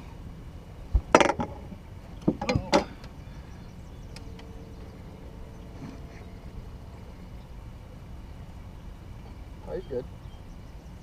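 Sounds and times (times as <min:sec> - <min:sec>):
knocks and rattles: 0:01.0 - 0:02.9.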